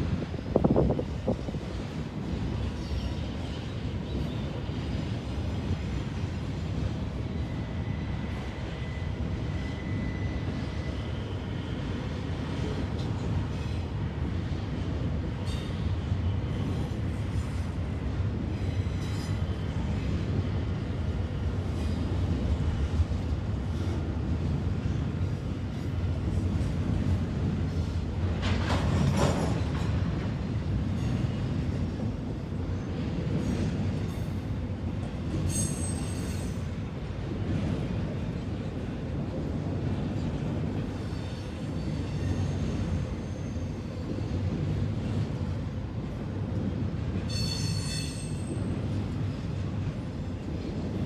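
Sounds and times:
freight train rumbling past: 0.0 - 51.0.

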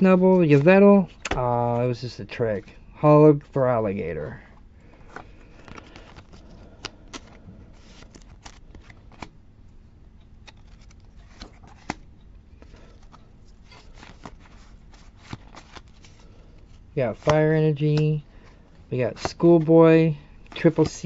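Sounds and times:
cards rustling and sliding: 0.1 - 1.9, 4.8 - 9.3, 10.4 - 19.8, 20.4 - 21.0.

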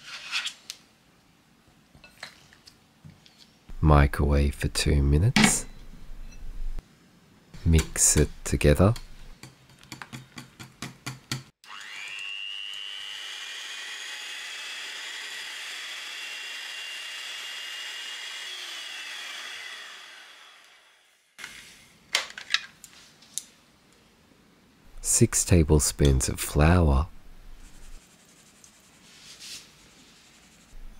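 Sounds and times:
electric hand mixer whining: 11.6 - 20.9.

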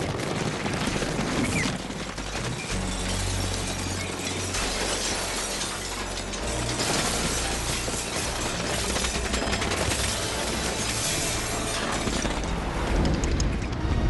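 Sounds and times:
rapid automatic gunfire: 0.0 - 3.1, 6.7 - 12.2
bullets shattering things: 0.2 - 12.7.

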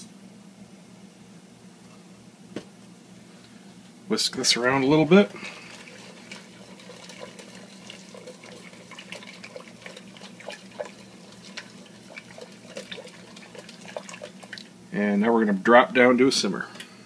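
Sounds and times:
wooden spoon stirring: 4.6 - 14.7
thick soup bubbling in pot: 4.6 - 14.8.

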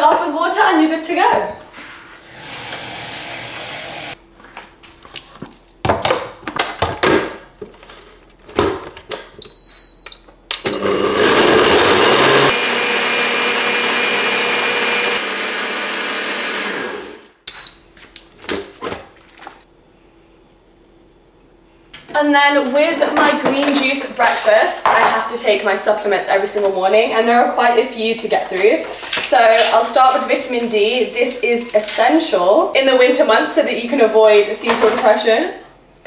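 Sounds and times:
blender motor whirring: 2.2 - 4.2, 10.6 - 17.3.

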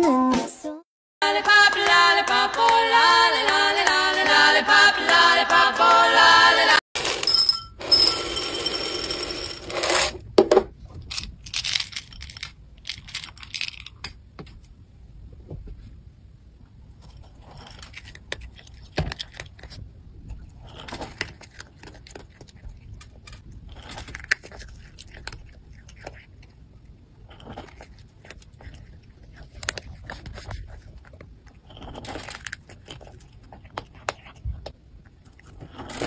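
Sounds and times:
pellets clinking against glass: 7.0 - 10.1
cat eating dry kibble: 16.8 - 36.0.

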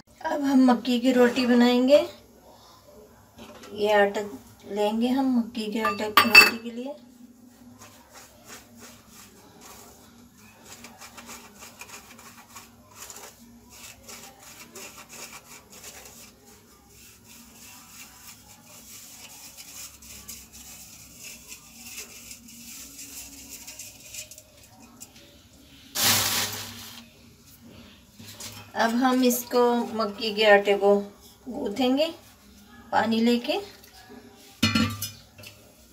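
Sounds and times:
flour scratching through mesh sieve: 7.0 - 34.6.

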